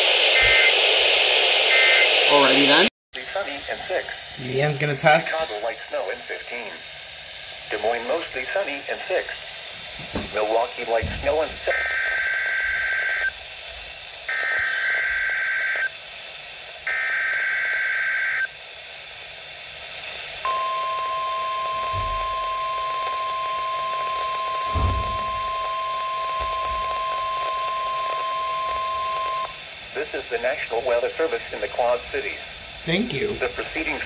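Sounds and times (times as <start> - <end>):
buzzy digital header bursts: 2.3 - 6.7
steady warning alarm tone: 10.3 - 13.4, 14.3 - 15.9, 16.9 - 18.6, 20.4 - 29.7.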